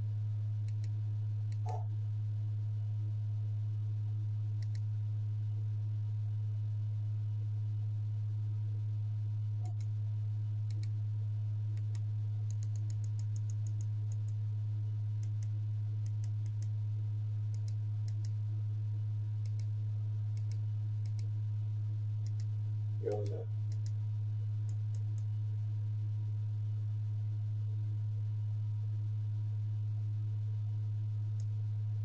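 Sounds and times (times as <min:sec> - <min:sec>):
steady low hum: 0:00.0 - 0:32.0
remote buttons clicking: 0:01.5 - 0:01.9.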